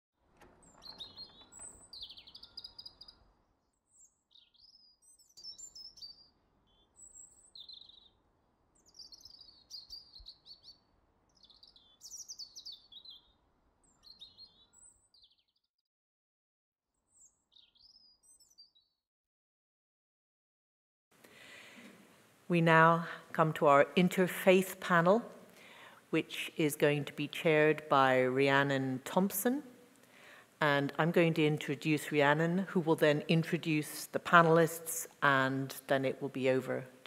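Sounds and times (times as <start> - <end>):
birds chirping and warbling: 0.5 - 15.7, 17.0 - 19.0
faint steady hiss: 21.2 - 27.4.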